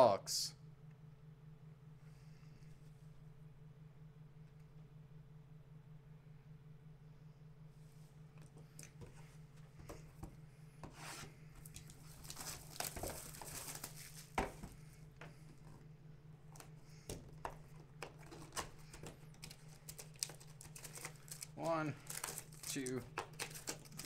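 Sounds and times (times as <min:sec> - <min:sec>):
steady low hum: 0:00.0 - 0:24.0
cardboard box handled and opened: 0:11.0 - 0:14.8
plastic wrap tearing and crinkling: 0:11.7 - 0:14.4, 0:18.1 - 0:24.0.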